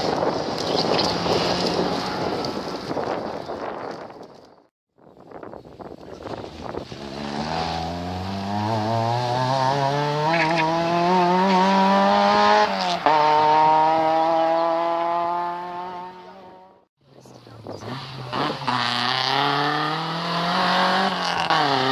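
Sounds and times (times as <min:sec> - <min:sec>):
rally car engine accelerating: 0:06.9 - 0:16.8, 0:17.8 - 0:21.9.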